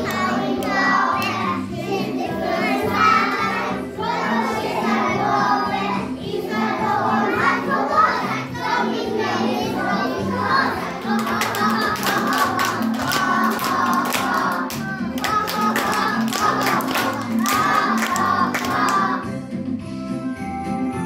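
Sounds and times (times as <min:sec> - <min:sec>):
hands clapping in rhythm: 0:00.0 - 0:01.6, 0:10.8 - 0:19.3
children singing: 0:00.0 - 0:19.3.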